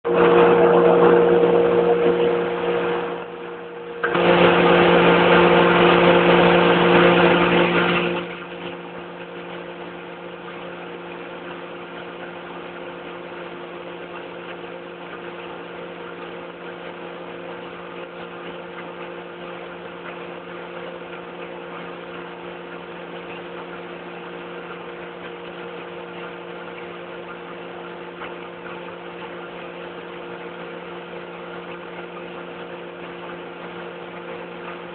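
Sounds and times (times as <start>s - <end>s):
drilling rig machinery hum: 0.1s - 34.9s.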